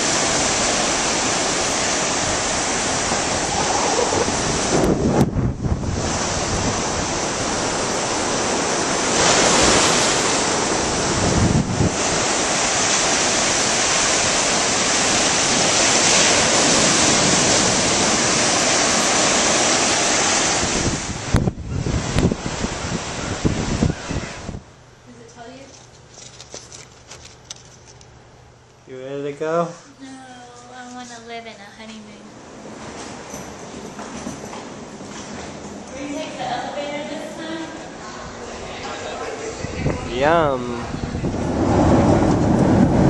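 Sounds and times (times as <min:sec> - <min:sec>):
wind buffeting microphone: 0:00.0 - 0:18.6, 0:20.5 - 0:24.8, 0:38.0 - 0:43.0
waves crashing on beach: 0:00.0 - 0:24.6, 0:36.0 - 0:43.0.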